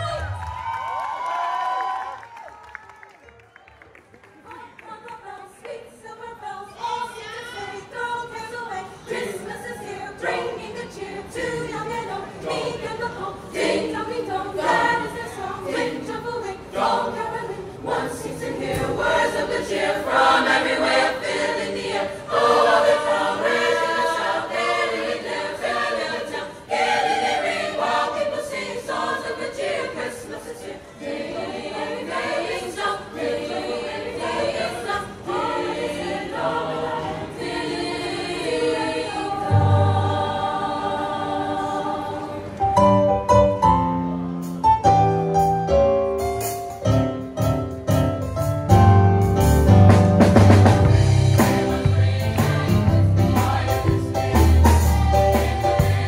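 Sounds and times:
children's choir singing a carol: 4.4s - 42.9s, 50.6s - 56.0s.

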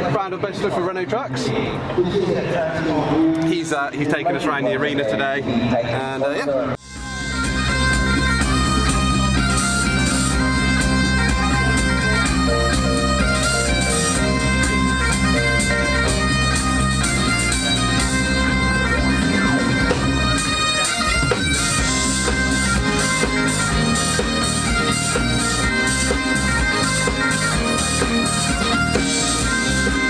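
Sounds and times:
bagpipe drones: 6.8s - 30.0s
bagpipe melody: 6.8s - 30.0s.

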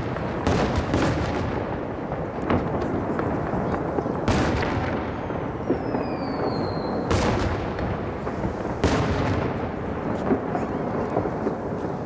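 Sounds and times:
firework booms: 0.0s - 12.0s
firework pops: 0.0s - 12.0s
firework whistle falling in pitch: 5.1s - 7.1s.

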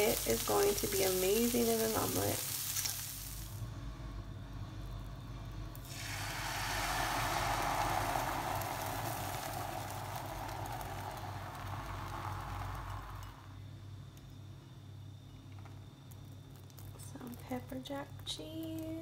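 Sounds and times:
egg sizzling in frying pan: 0.0s - 3.6s, 5.8s - 13.6s
steady low hum: 3.2s - 19.0s.

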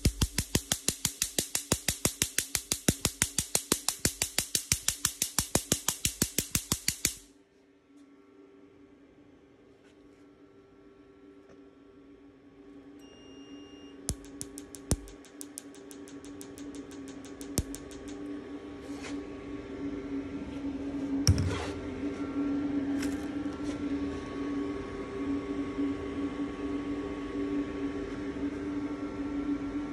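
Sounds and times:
laser firing sharp snaps: 0.0s - 7.3s, 14.1s - 18.3s
machine cooling hum: 0.0s - 29.9s
short beep: 13.0s - 14.0s.

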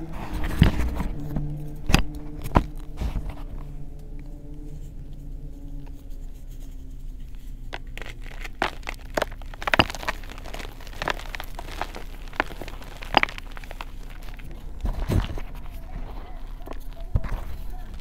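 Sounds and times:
chalk crunching by hand: 5.6s - 18.0s.

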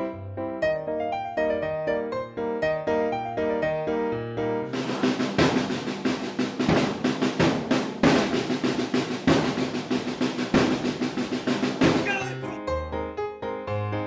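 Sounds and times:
field drums marching rhythm: 4.7s - 12.5s.

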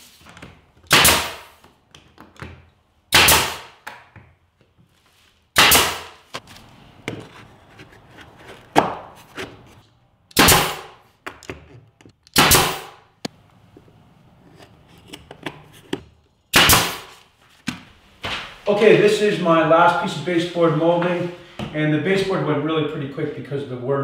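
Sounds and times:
nail gun firing: 0.9s - 1.6s, 3.1s - 3.8s, 5.6s - 6.2s, 10.3s - 11.0s, 12.3s - 13.0s, 16.5s - 17.1s
handling taps and clicks: 1.6s - 2.8s, 11.2s - 12.4s, 13.2s - 16.4s.

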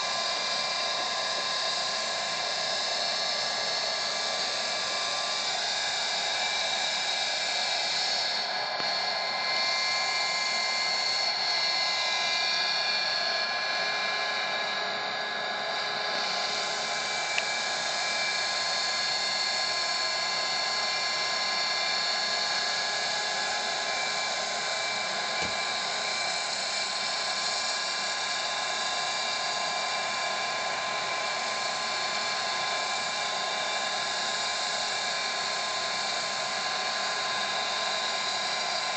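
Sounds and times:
small turbine engine whine: 0.0s - 38.9s.

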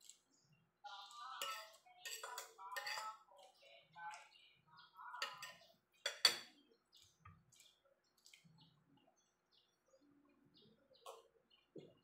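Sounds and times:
cutlery clinking on ceramic plate: 1.4s - 3.2s, 5.2s - 6.5s
faint bird chirps: 3.6s - 12.0s.

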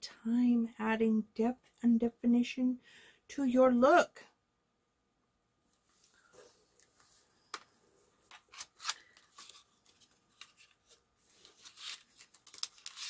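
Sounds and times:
cardboard packaging rustling: 8.3s - 13.0s.

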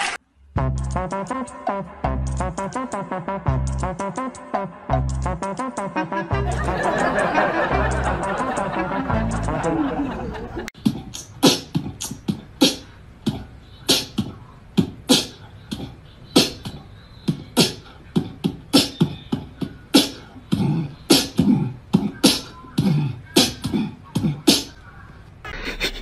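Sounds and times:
beatboxing hissing hi-hat: 0.6s - 4.5s, 7.7s - 9.7s, 10.8s - 24.8s
beatboxing kick thumps: 10.8s - 24.8s.

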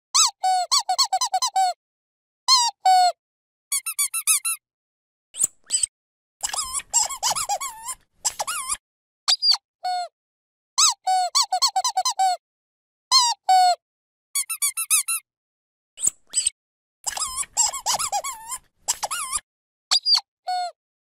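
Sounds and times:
dog squeaky toy squeaking: 0.2s - 1.8s, 3.7s - 4.6s, 6.4s - 9.6s, 10.8s - 12.4s, 14.4s - 15.2s, 17.1s - 20.6s.

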